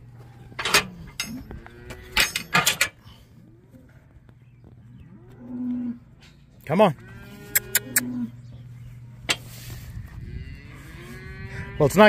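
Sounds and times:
cattle mooing low: 0:00.2 - 0:02.4, 0:04.8 - 0:06.2, 0:07.0 - 0:08.6, 0:09.6 - 0:12.0
steel cattle chute clanking: 0:00.6 - 0:01.4, 0:02.0 - 0:03.1.

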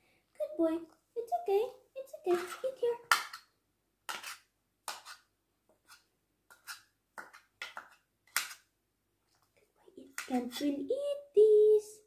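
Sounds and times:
metal spoon scraping a bowl: 0:04.1 - 0:08.5.

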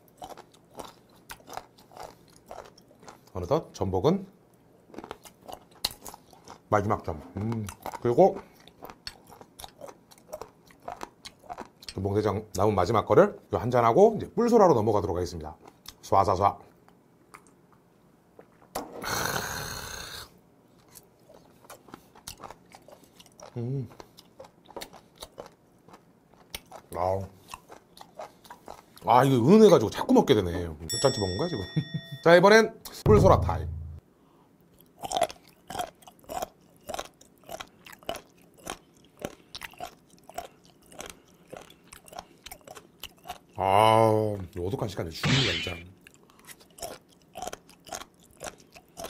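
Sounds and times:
crunchy chewing: 0:00.0 - 0:03.5, 0:04.9 - 0:12.2, 0:20.8 - 0:29.1, 0:34.7 - 0:43.6, 0:46.0 - 0:49.0
faint eating clicks: 0:00.0 - 0:03.6, 0:04.9 - 0:12.4, 0:16.8 - 0:18.6, 0:20.8 - 0:29.1, 0:34.7 - 0:43.6, 0:46.0 - 0:49.0.

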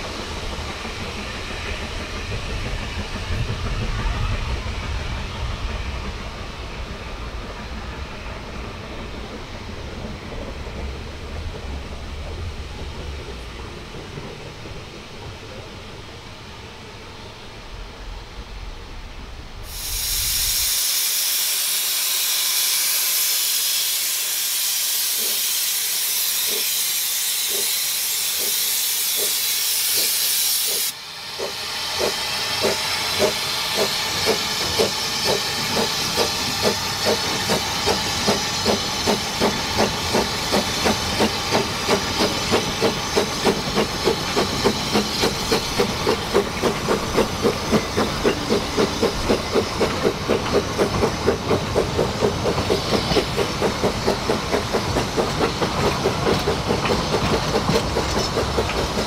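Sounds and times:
steam locomotive exhaust chuffs: 0:00.0 - 0:15.7, 0:19.6 - 0:59.0
loud hiss of escaping steam: 0:19.5 - 0:59.0.

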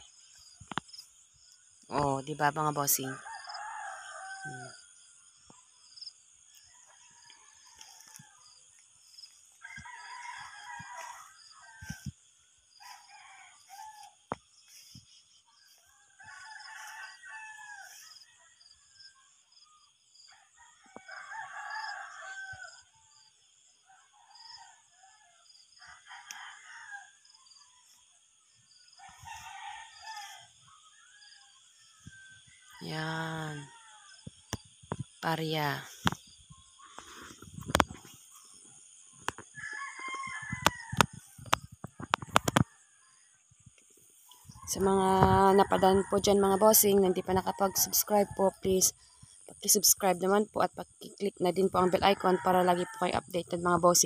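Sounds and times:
roosters crowing: 0:02.5 - 0:04.9, 0:06.6 - 0:14.9, 0:15.6 - 0:19.0, 0:20.4 - 0:22.8, 0:24.1 - 0:27.2, 0:29.0 - 0:34.5, 0:35.3 - 0:43.1, 0:44.3 - 0:50.2, 0:51.6 - 0:53.4.

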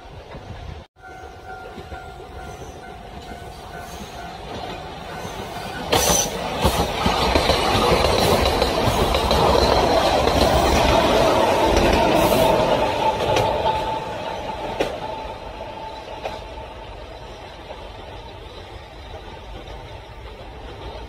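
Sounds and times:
electric train passing: 0:00.0 - 0:21.0
wheels clattering over rail joints: 0:01.2 - 0:16.7.

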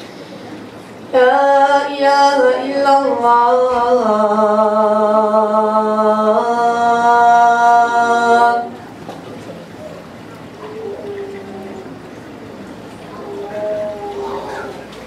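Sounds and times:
boy chanting call to prayer: 0:01.1 - 0:08.8, 0:13.1 - 0:15.0.

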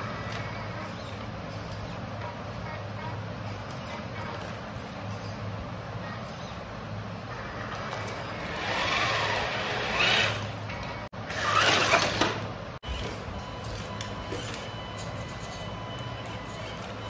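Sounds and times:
toy car motor humming: 0:07.3 - 0:10.6, 0:11.3 - 0:12.4.

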